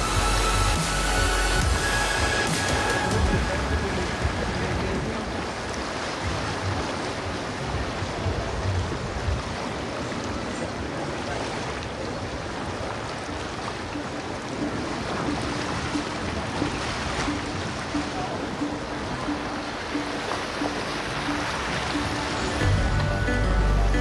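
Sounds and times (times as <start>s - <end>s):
wind rumble on microphone: 3.1s - 19.2s.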